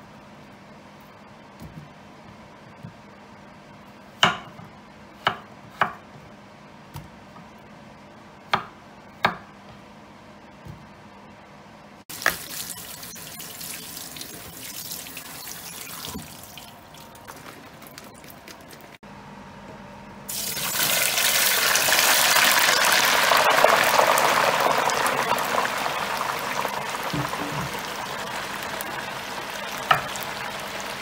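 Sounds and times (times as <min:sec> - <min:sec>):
tap water running into sink: 0:12.1 - 0:18.9, 0:23.8 - 0:28.0.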